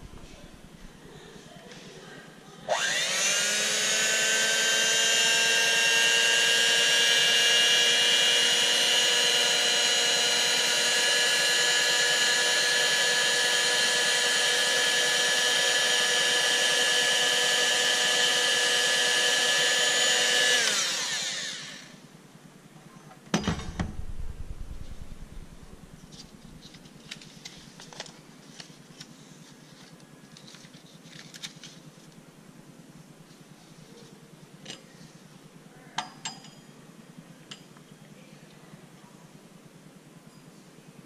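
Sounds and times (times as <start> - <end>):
electric hand mixer whine: 2.7 - 22.0.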